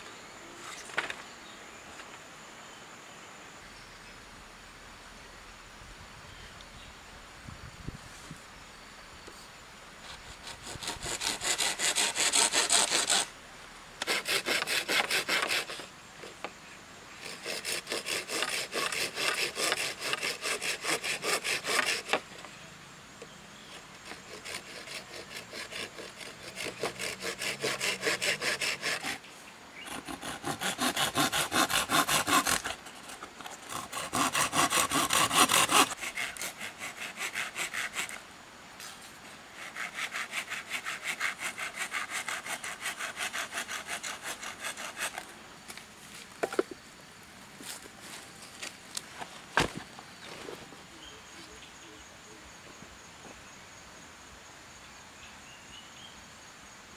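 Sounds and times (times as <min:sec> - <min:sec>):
hand saw cutting bamboo: 0:10.0 - 0:13.3, 0:14.0 - 0:16.4, 0:17.2 - 0:22.3, 0:24.0 - 0:29.2, 0:29.8 - 0:38.2, 0:39.6 - 0:45.3.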